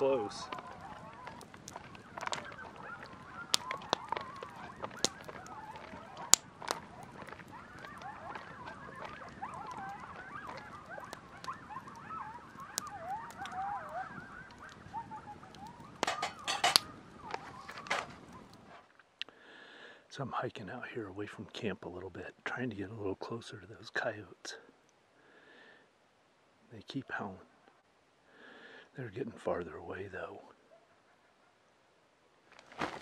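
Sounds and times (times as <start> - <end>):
coyotes howling and yipping: 0.0 - 18.9, 30.4 - 31.9
sharp clicks: 0.5 - 13.6.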